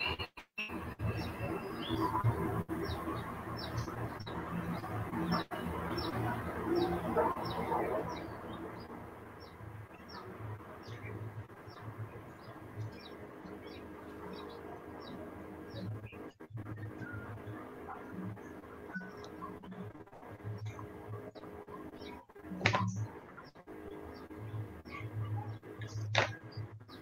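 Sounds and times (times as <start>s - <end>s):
small bird chirping: 6.8s - 27.0s.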